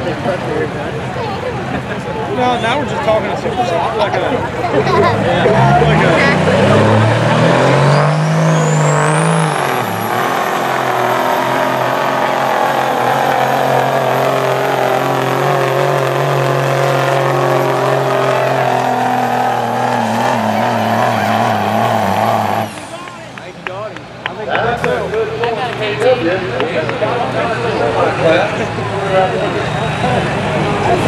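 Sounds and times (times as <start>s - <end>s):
diesel engine at full throttle: 0.0s - 31.0s
turbocharger whine: 5.2s - 23.6s.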